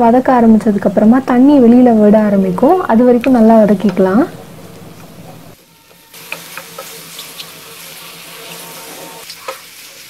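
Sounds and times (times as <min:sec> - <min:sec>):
vegetables sizzling in a pan: 0:03.8 - 0:10.0.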